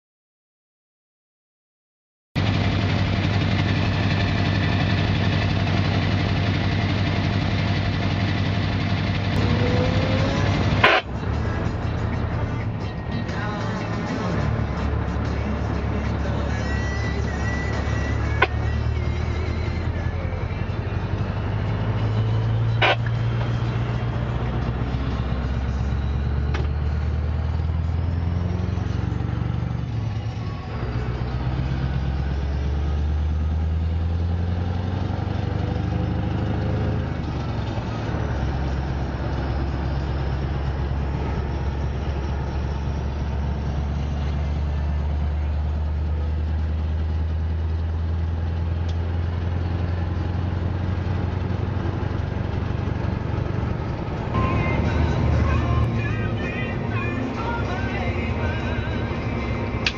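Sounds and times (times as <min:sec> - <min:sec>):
diesel truck engine running: 0:02.4 - 0:59.9.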